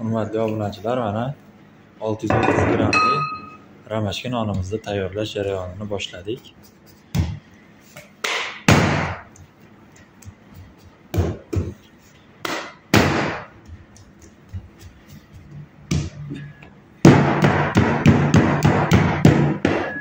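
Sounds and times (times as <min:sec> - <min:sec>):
hands slapping dough on wood: 0:07.0 - 0:16.2.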